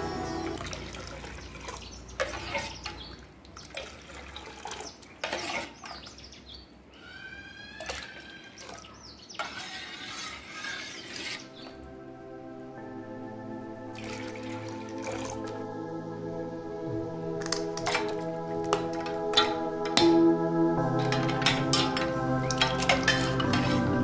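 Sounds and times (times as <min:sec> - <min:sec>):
background music: 0:00.0 - 0:01.6, 0:10.5 - 0:24.0
liquid pouring and splashing: 0:00.6 - 0:06.0, 0:13.9 - 0:15.6.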